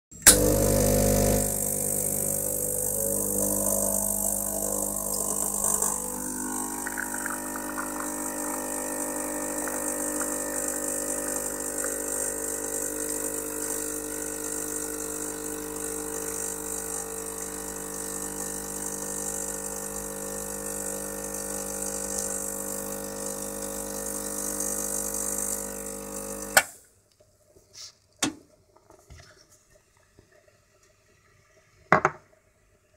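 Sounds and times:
pump switching off click: 0.2 - 0.9, 3.3 - 8.5
espresso machine pump buzzing: 0.2 - 26.7.

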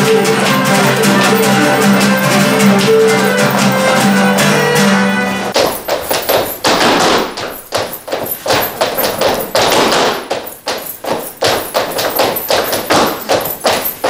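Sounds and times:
boots stamping on wooden floor: 5.6 - 14.0.

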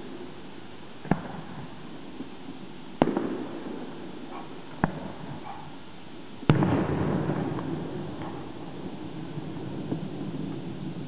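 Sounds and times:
fireworks bangs: 3.0 - 5.5, 6.4 - 11.0.

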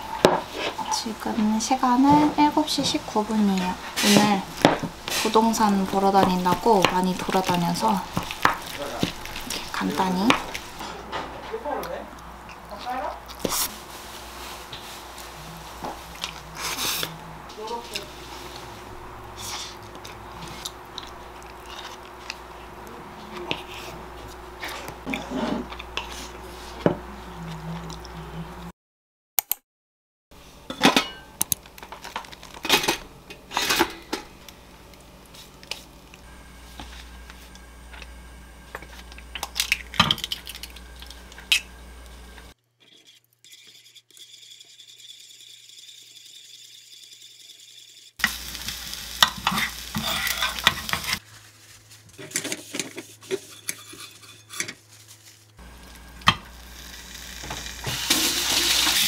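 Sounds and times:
spoon scraping in wooden bowl: 42.8 - 48.0, 52.2 - 55.2.

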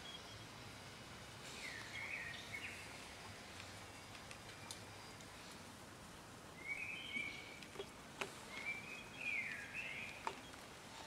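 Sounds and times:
small bird chirping: 6.6 - 10.6.

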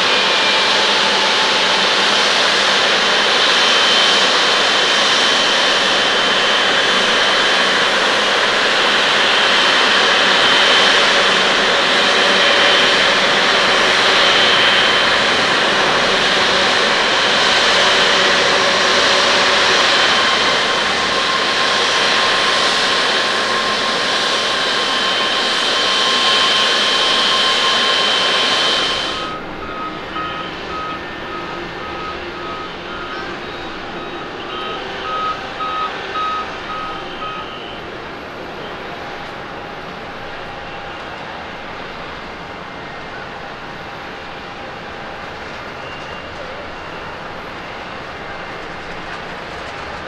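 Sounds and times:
jet engines whining: 0.0 - 50.0
short electronic beeps: 25.9 - 37.8.

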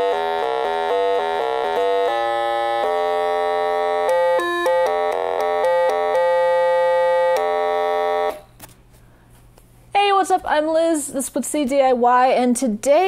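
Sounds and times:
buzzy synthesizer melody: 0.0 - 8.5.

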